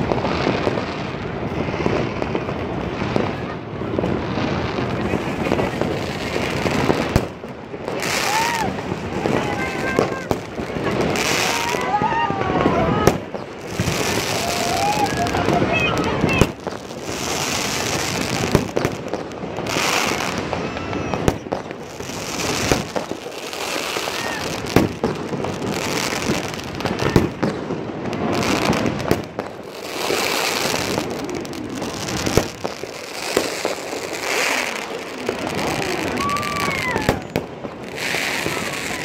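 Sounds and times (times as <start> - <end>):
firecrackers crackling: 0.0 - 39.0
firework bangs: 0.0 - 39.0
firework whistles: 7.9 - 27.6, 28.2 - 39.0.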